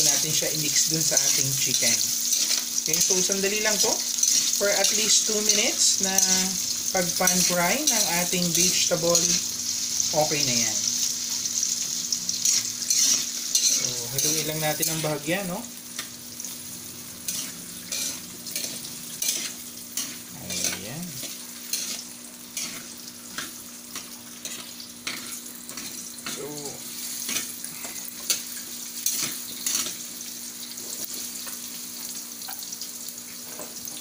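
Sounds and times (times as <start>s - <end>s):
vegetables sizzling in hot oil: 0.0s - 34.0s
metal spatula scraping wok: 12.4s - 15.1s, 17.3s - 22.9s.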